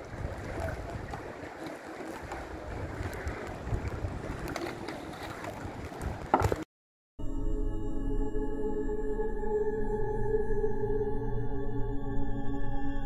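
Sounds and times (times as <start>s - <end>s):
sea wash: 0.0s - 6.6s
wind buffeting microphone: 0.0s - 6.6s
small knocks: 6.2s - 6.6s.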